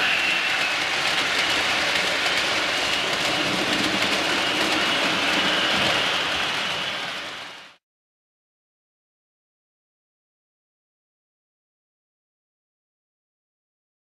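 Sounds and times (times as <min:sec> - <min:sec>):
model train rumbling on track: 0:00.0 - 0:07.8.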